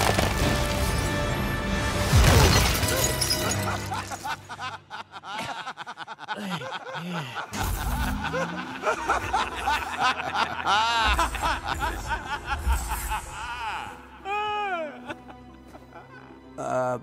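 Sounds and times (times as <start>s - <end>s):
background music: 0.0s - 17.0s
loud shattering crash: 1.9s - 4.2s
men laughing: 3.0s - 17.0s.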